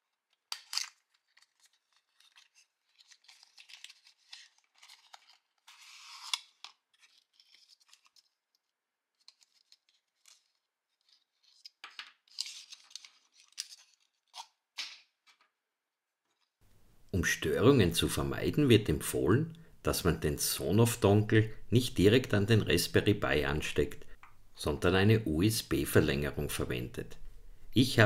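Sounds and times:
paper rustling: 0:00.0 - 0:15.5.

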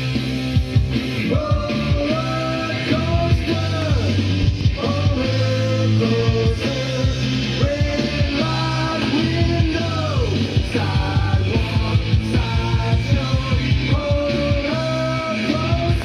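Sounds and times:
song played from vinyl record: 0:00.0 - 0:16.0.

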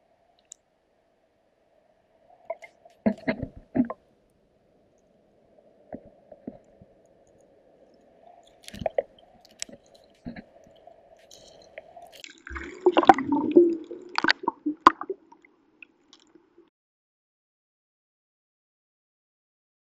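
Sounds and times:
underwater clicks and knocks: 0:02.5 - 0:04.0, 0:08.6 - 0:10.5
water gurgling: 0:02.5 - 0:04.0, 0:07.8 - 0:16.6.

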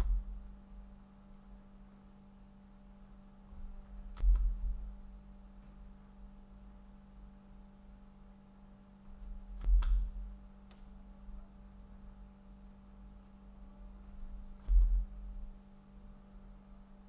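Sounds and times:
steady low hum: 0:00.0 - 0:17.0
low thud: 0:14.6 - 0:15.4.

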